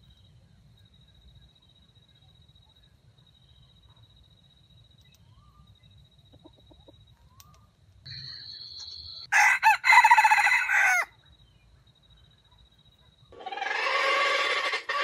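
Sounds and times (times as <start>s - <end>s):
rooster crowing: 9.3s - 11.2s.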